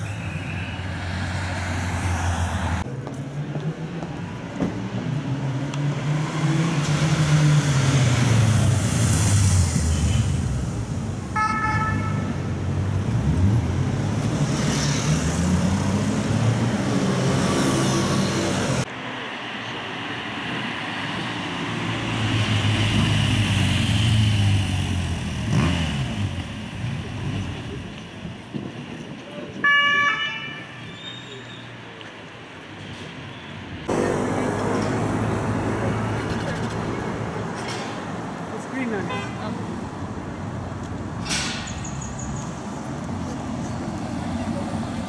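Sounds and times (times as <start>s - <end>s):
motorcycle engines accelerating: 21.9s - 28.1s, 33.8s - 37.2s.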